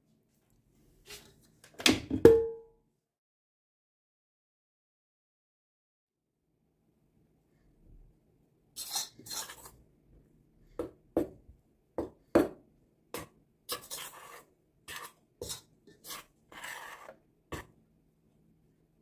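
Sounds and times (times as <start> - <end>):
metal spoon scraping steel bowl: 8.8 - 9.8, 13.7 - 17.7.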